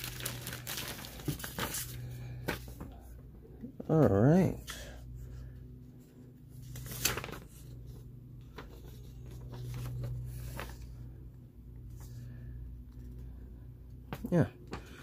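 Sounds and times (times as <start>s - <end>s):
paper rustling and crinkling: 0.0s - 3.1s, 6.5s - 11.2s
low steady hum: 0.0s - 15.0s.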